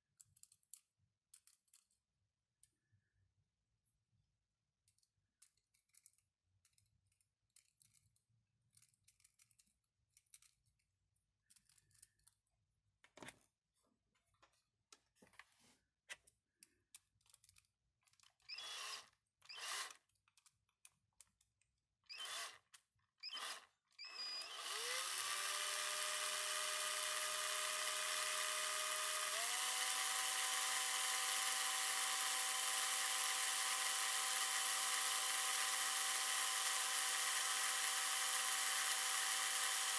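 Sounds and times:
small electric drill whining: 18.5s - 20.0s, 22.1s - 39.9s.

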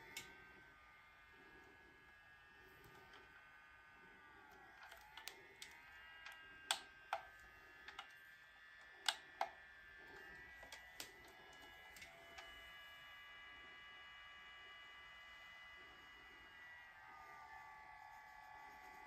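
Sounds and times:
sharp clicks: 4.8s - 8.2s, 8.9s - 9.6s.

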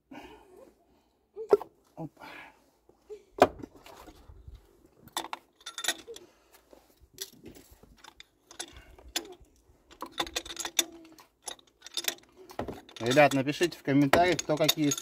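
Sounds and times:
metal hand tools clinking: 5.2s - 6.3s, 8.0s - 15.0s.

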